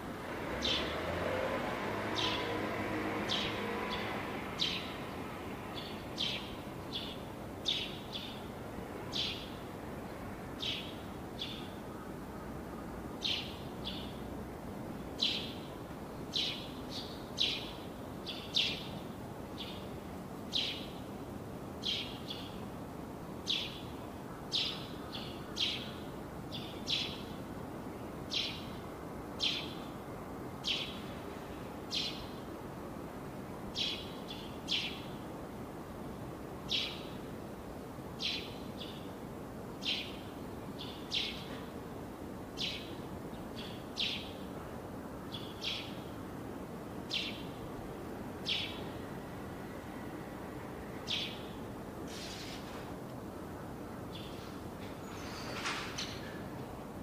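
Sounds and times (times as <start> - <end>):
outdoor background hum: 0.0 - 57.0
bird chirping: 48.4 - 48.9.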